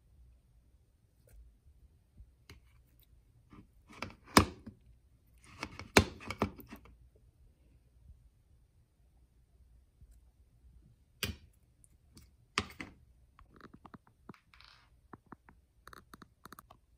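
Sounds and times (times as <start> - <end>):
spoon knocking and scraping containers: 5.4 - 6.9, 12.2 - 13.0.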